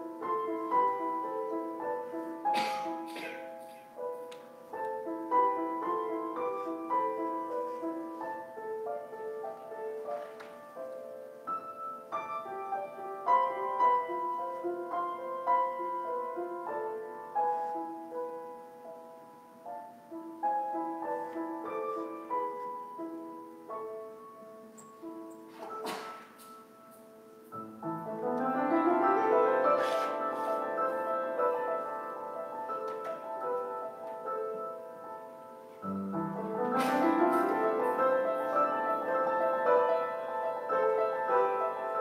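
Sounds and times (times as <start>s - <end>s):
piano notes and chords: 0.0s - 42.0s.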